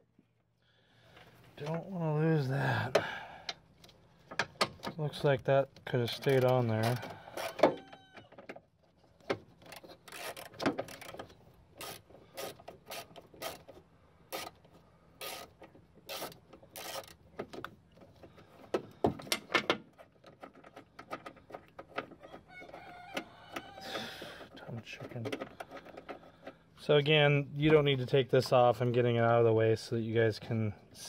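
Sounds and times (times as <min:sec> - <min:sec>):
plastic and metal parts rattling: 0:03.9 - 0:26.8.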